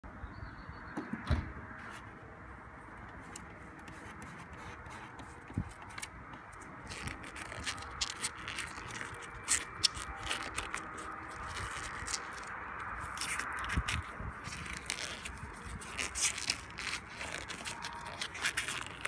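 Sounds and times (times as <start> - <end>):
rubber coating peeling crackle: 5.2 - 19.0.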